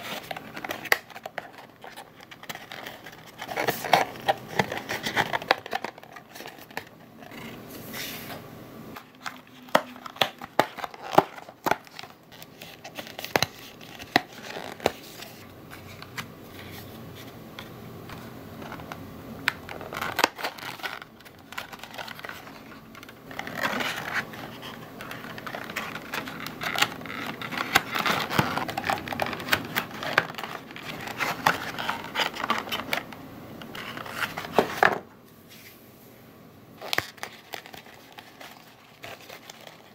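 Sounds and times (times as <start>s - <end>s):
paper rustling and scraping: 0.0s - 8.4s, 19.7s - 33.0s, 33.7s - 35.8s, 36.8s - 39.9s.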